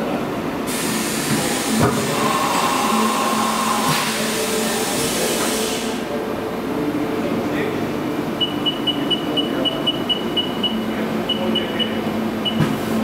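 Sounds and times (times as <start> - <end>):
machine rushing hiss: 0.7 - 6.1.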